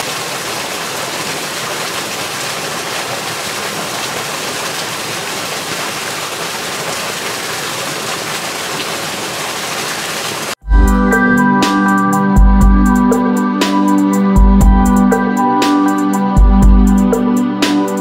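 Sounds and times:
waterfall splashing into pool: 0:00.0 - 0:10.6.

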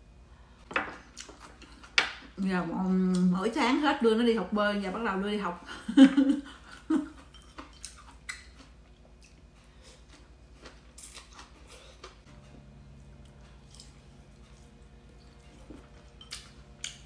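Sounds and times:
person chewing noodles: 0:06.7 - 0:12.3, 0:13.1 - 0:17.0.

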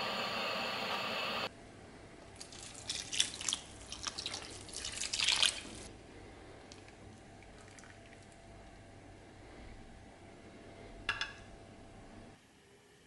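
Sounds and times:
water pouring into a pot: 0:02.4 - 0:05.9, 0:07.4 - 0:08.4.

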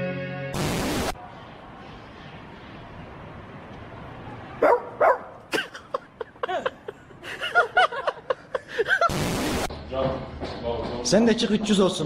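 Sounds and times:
man laughing: 0:05.5 - 0:09.2.

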